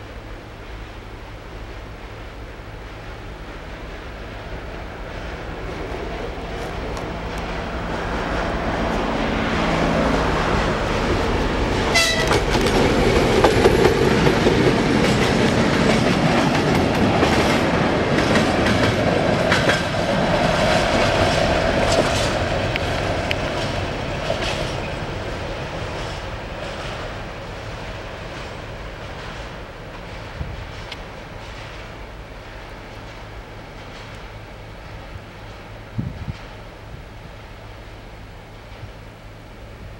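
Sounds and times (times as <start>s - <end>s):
diesel locomotive engine running: 0.0s - 39.9s
wheels clacking over rail joints: 1.6s - 39.4s
locomotive horn blast: 11.8s - 12.5s.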